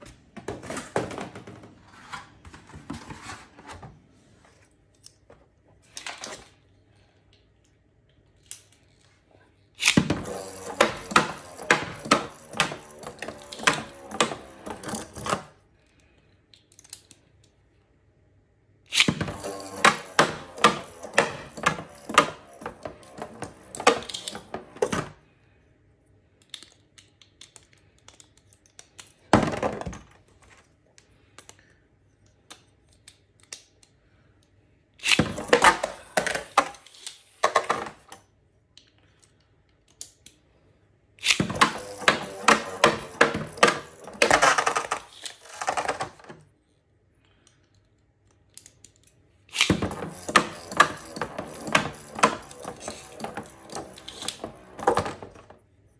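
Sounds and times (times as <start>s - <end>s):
spinning tops clattering in plastic stadium: 10.0s - 15.3s, 19.1s - 24.8s, 41.2s - 46.2s, 49.5s - 55.4s.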